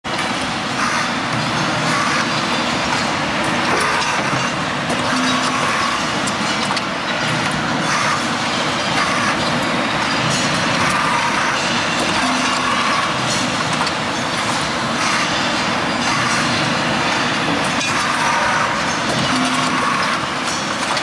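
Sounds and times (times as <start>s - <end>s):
welding machine running: 0.1s - 21.0s.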